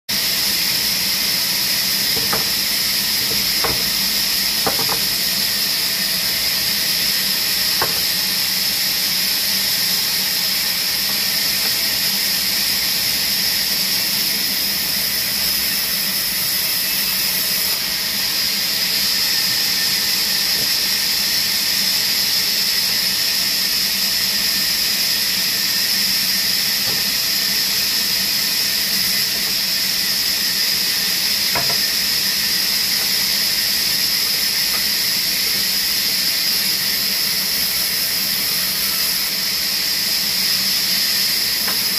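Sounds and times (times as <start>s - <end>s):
band saw cutting wood: 0.4s - 23.8s, 24.4s - 41.9s.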